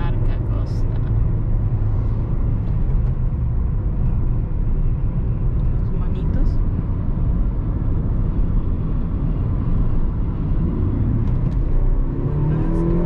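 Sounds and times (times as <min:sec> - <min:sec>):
car engine and tyre rumble: 0:00.0 - 0:13.0
engine revving up: 0:10.5 - 0:13.0.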